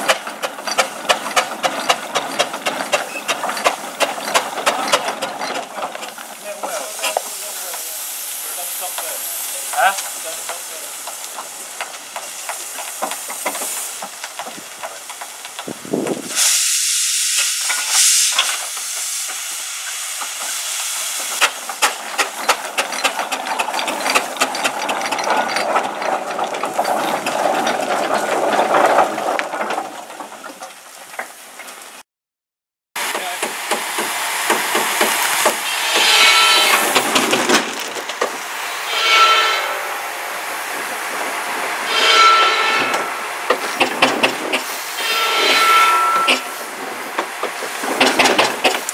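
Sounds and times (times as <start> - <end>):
steam engine chuffing: 0.0 - 30.7, 33.0 - 39.8, 40.8 - 48.9
steam hiss burst: 6.6 - 22.4, 33.0 - 48.9.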